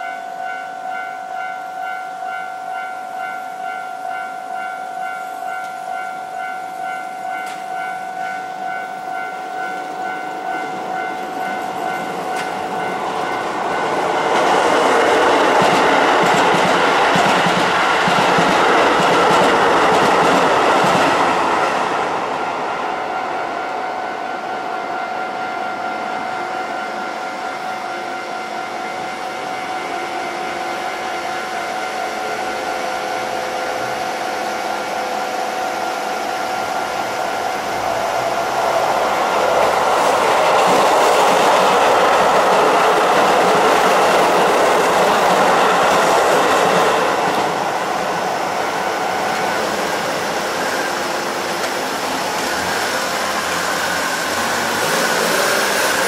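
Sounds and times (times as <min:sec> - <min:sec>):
level crossing warning bell: 0:00.0 - 0:21.7, 0:22.3 - 0:56.0
train wheels rumbling and clattering: 0:09.2 - 0:23.2, 0:30.8 - 0:56.0.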